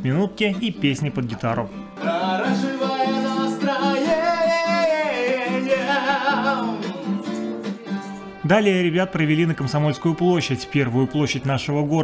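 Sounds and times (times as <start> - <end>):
acoustic guitar strumming: 0.4 - 11.5
man singing: 2.0 - 11.1.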